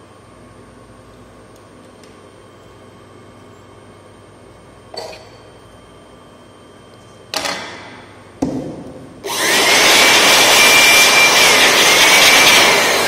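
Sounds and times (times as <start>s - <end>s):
electric air blower whining and hissing: 9.2s - 13.0s.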